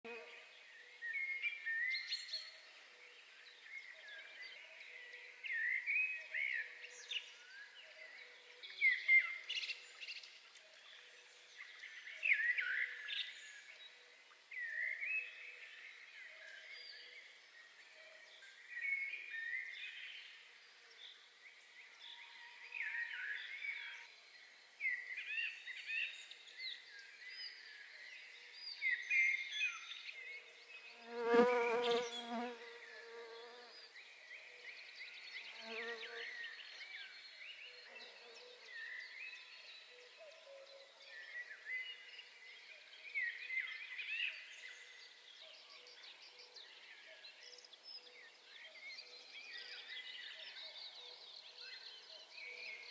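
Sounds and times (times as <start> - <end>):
small birds singing: 0.0 - 52.9
flying insect buzzing: 31.0 - 33.7.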